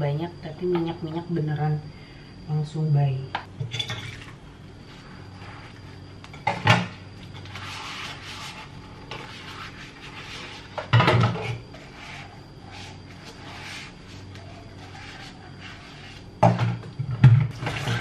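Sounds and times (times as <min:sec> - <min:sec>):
sponge scrubbing a plastic cup: 0:07.4 - 0:10.7, 0:11.8 - 0:16.3.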